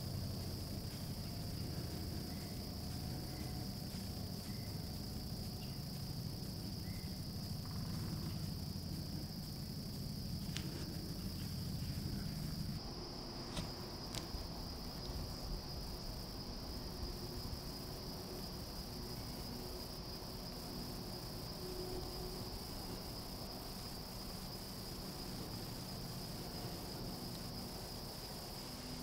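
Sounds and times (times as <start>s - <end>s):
insect chorus drone: 0.0s - 29.0s
faint clicks: 9.5s - 11.6s.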